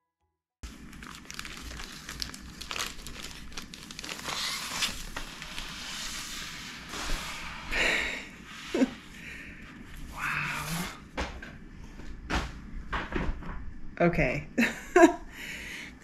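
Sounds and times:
plastic bag crinkling: 0.6s - 6.4s.

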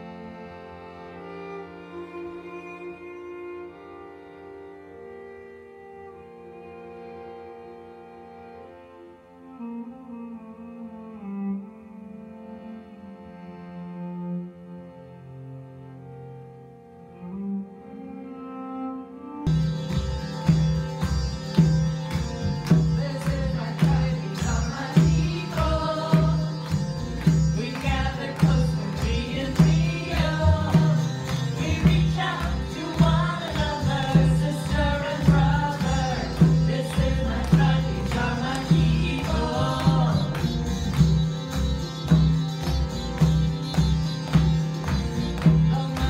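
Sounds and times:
harmonium drone: 0.0s - 46.0s
sung chant: 22.9s - 41.0s, 45.4s - 46.0s
hand drum beat: 27.2s - 41.3s.

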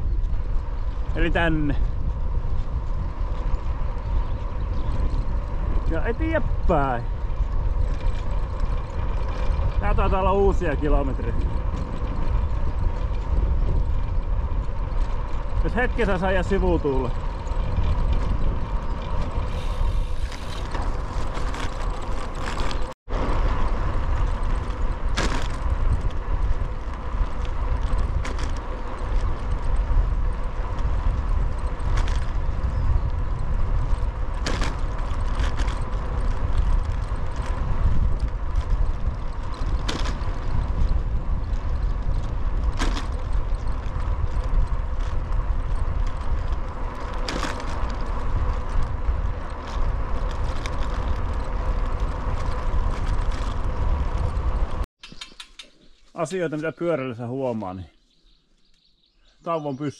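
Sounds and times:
wind rumbling over microphone: 0.0s - 54.9s
road noise: 0.0s - 59.9s
sharp tick: 55.0s - 55.8s.

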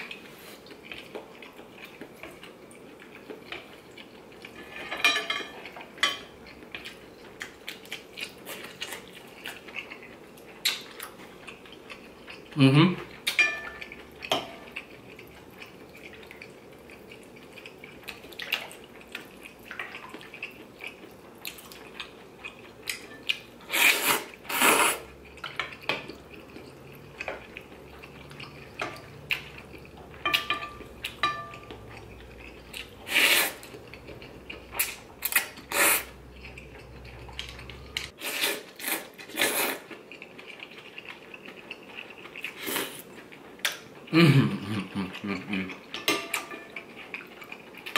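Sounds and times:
utensils clinking against bowl: 4.5s - 6.3s, 13.3s - 14.8s, 30.1s - 32.5s, 45.9s - 47.0s
person slurping noodles: 23.7s - 25.1s, 33.0s - 33.7s, 35.7s - 36.2s, 38.2s - 39.9s.

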